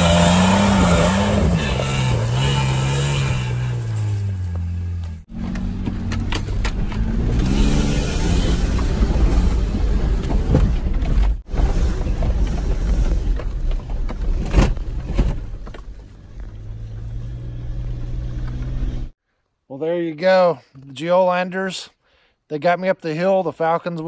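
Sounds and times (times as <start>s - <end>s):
truck engine revving: 0.0s - 10.6s
truck knocks and thumps: 0.0s - 17.2s.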